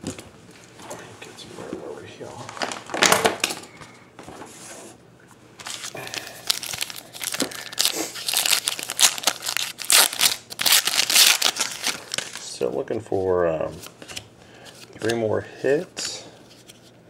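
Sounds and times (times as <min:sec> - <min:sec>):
foil pack crinkling and tearing: 0:05.6 - 0:12.6.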